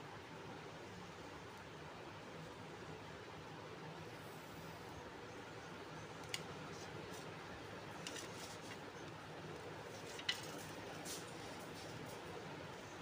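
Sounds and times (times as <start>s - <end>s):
steady low hiss: 0.0s - 13.0s.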